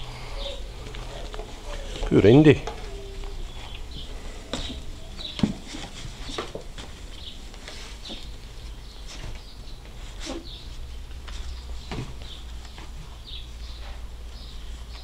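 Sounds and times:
puppies squeaking: 0.1 - 6.4
light knocks and patter: 0.8 - 10.5.

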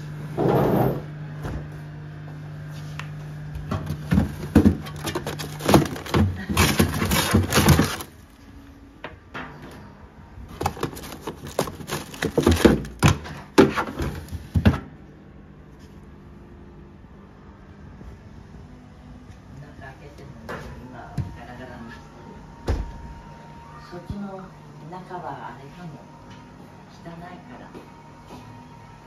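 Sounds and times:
freezer drawer pulled open: 4.2 - 8.3, 10.6 - 14.5
plastic packaging rustling: 4.2 - 8.5, 10.5 - 13.4.

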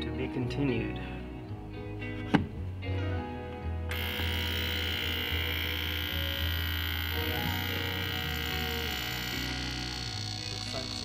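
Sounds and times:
high hissing whine of liquid: 3.9 - 11.0
ultrasonic cleaner buzzing: 3.9 - 11.0.

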